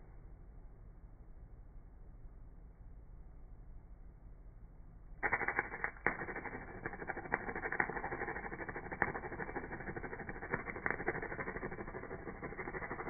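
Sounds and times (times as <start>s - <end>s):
welding arc crackling and popping: 5.2s - 13.0s.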